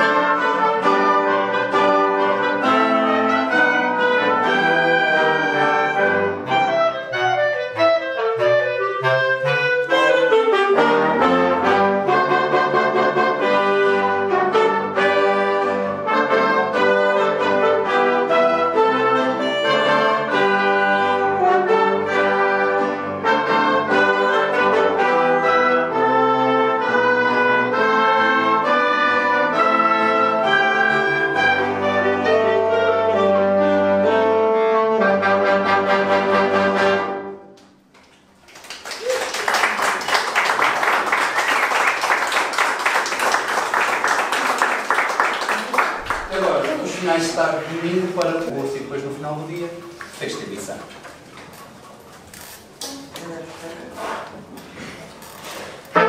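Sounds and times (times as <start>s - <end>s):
wind band playing: 0.0s - 37.6s, 38.8s - 51.0s, 55.3s - 56.0s
audience applauding: 38.0s - 47.4s.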